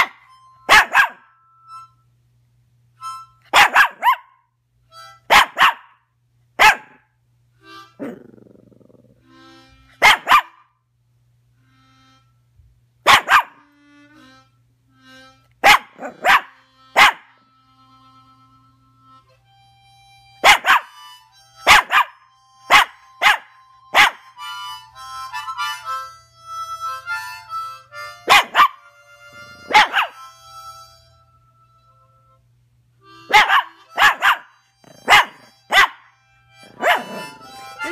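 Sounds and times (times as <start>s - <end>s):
puppy barking: 0.0s - 1.3s, 3.5s - 4.4s, 5.3s - 6.0s, 6.6s - 7.1s, 10.0s - 10.7s, 13.0s - 13.7s, 15.6s - 17.4s, 20.4s - 21.0s, 21.6s - 24.3s, 28.2s - 28.9s, 29.6s - 30.2s, 33.3s - 37.9s
harmonica playing: 0.0s - 3.6s, 4.8s - 5.3s, 7.5s - 8.0s, 9.2s - 10.0s, 11.5s - 13.0s, 13.6s - 37.9s.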